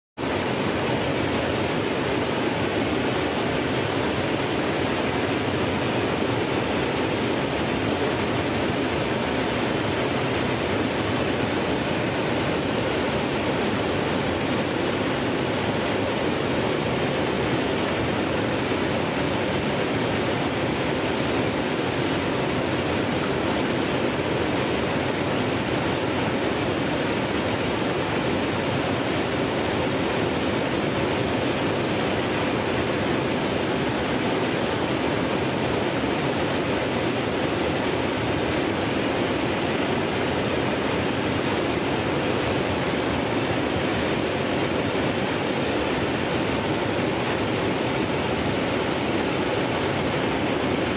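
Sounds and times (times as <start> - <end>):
waterfall rushing and splashing: 0.2 - 50.9.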